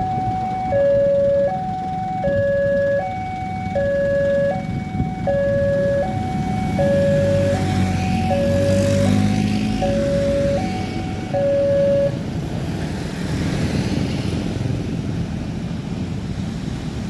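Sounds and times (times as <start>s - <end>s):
level crossing two-tone alarm: 0.0s - 12.2s.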